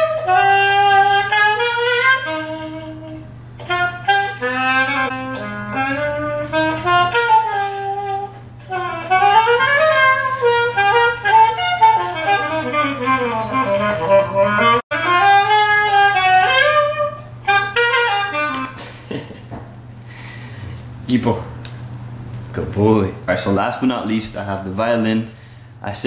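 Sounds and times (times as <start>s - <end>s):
saxophone melody through speakers: 0.0s - 18.8s.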